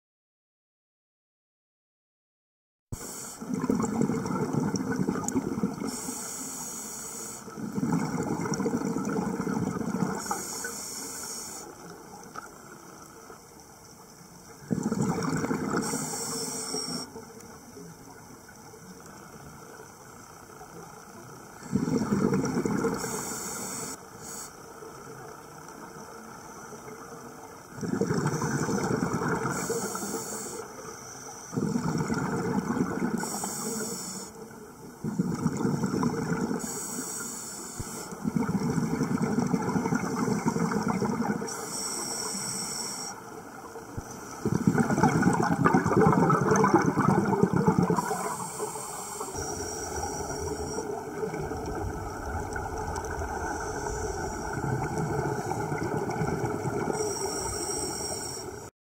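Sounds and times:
scuba regulator inhale hiss: 3.0 - 3.5, 5.8 - 7.6, 10.2 - 11.9, 15.8 - 17.2, 22.9 - 24.7, 28.2 - 31.8, 33.1 - 34.4, 36.6 - 38.2, 41.4 - 43.4, 47.9 - 51.3, 53.0 - 56.0, 56.8 - 58.7
exhaled air bubbling: 3.4 - 6.2, 7.4 - 10.8, 14.5 - 17.4, 21.5 - 24.4, 27.6 - 30.7, 31.5 - 33.8, 34.4 - 37.0, 37.8 - 41.9, 43.0 - 58.7.

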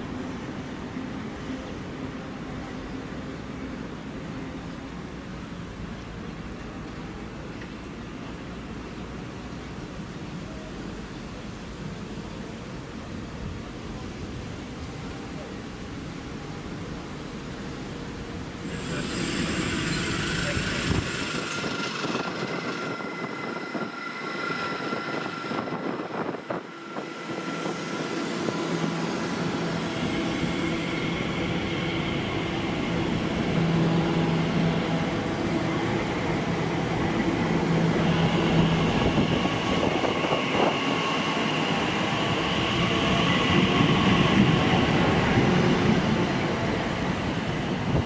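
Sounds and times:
wheels rumbling on rail: 0.0 - 48.0
electric train passing: 15.8 - 48.0.

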